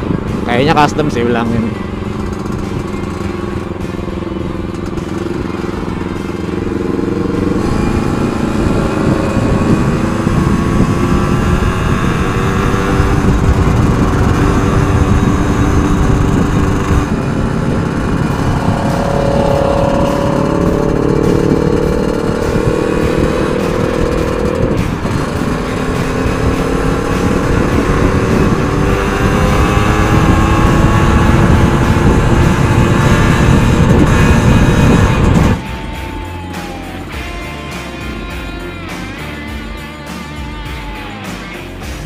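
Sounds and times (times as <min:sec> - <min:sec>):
two-stroke motorcycle engine running: 0:00.0 - 0:42.0
wind rumbling on microphone: 0:07.1 - 0:35.7.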